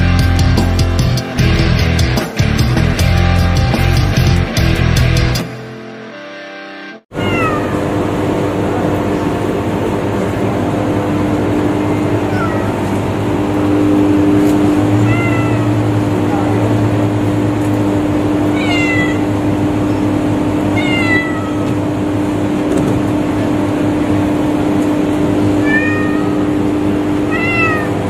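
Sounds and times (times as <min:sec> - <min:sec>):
cat meowing: 0:07.1 - 0:08.0, 0:12.2 - 0:13.0, 0:14.9 - 0:15.9, 0:18.5 - 0:19.4, 0:20.7 - 0:21.8, 0:25.5 - 0:28.0
steady low hum: 0:07.2 - 0:27.8.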